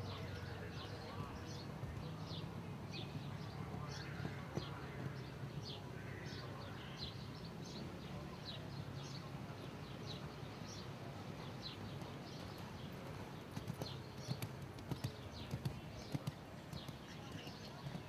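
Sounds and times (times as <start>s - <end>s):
birds chirping: 0.0s - 18.0s
horse hoofbeats on sand: 12.0s - 18.0s.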